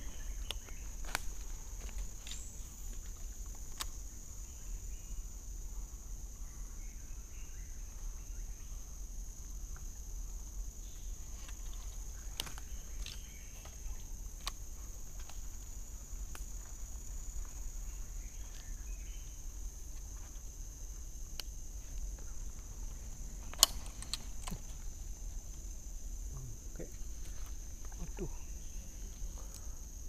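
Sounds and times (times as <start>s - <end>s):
insects droning: 0.0s - 30.0s
light rustling: 21.5s - 28.3s
sharp clicks: 23.4s - 24.8s.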